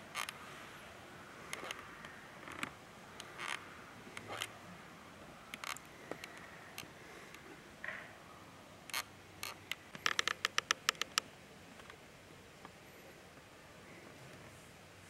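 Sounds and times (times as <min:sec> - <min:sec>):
faint steady hiss: 0:00.0 - 0:15.0
sharp clicks: 0:08.9 - 0:12.0.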